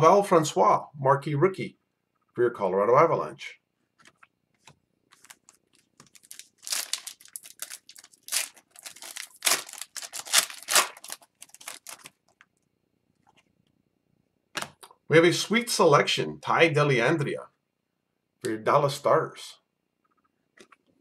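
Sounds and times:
foil wrapper crinkling: 5.1s - 12.4s.

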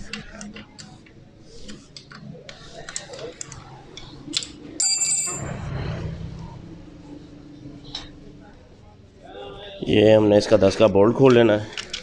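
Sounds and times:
loud ringing metal clink: 4.8s - 5.7s.

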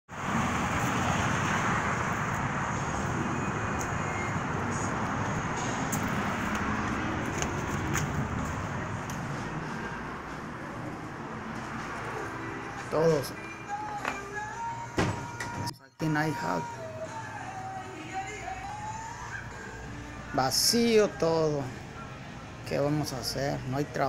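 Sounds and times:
roadway traffic noise: 0.1s - 24.0s.

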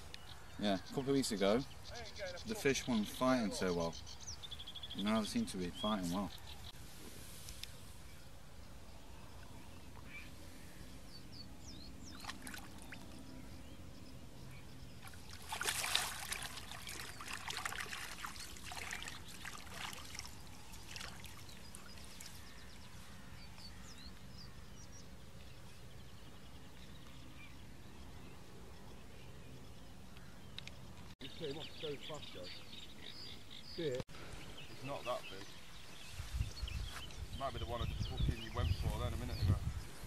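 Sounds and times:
water splashing and trickling: 12.0s - 13.2s, 14.9s - 22.9s.

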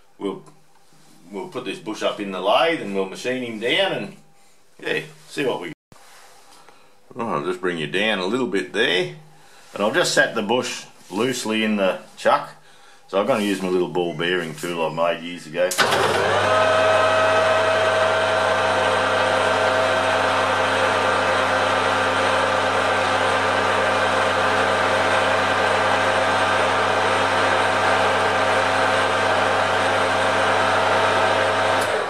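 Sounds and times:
metal lathe humming and whining: 15.8s - 32.0s.

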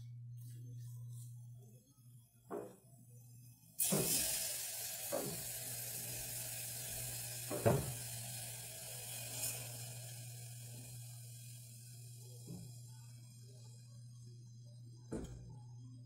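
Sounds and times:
vegetables sizzling in pot: 3.8s - 12.8s.

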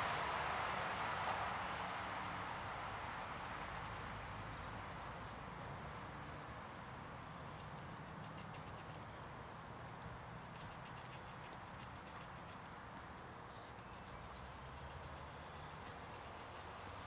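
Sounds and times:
background hiss: 0.0s - 6.7s
squirrel gnawing on a nut: 0.0s - 17.0s.

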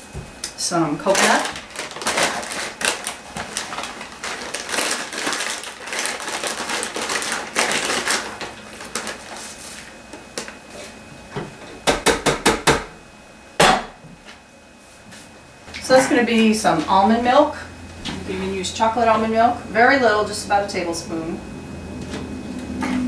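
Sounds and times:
plastic bag crinkling: 1.0s - 10.6s.

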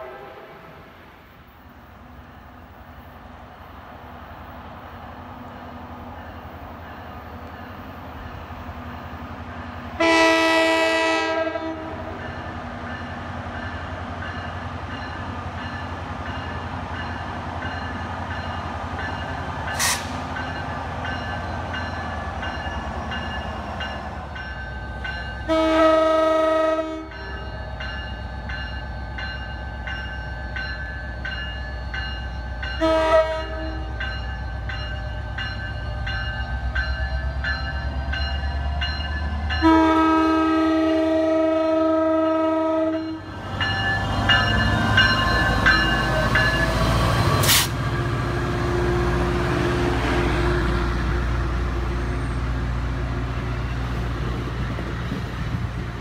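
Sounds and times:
locomotive horn blasts: 0.0s - 0.8s, 10.0s - 12.2s, 25.4s - 27.2s, 32.8s - 34.0s, 39.6s - 43.2s
crossing bell ringing: 11.4s - 41.4s, 42.2s - 47.3s.

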